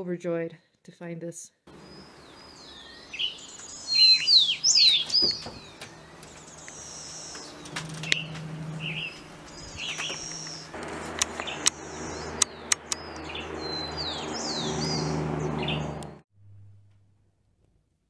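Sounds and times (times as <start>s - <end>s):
wild birds calling: 1.7s - 16.2s
sharp clicks: 9.9s - 11.8s, 12.4s - 13.3s.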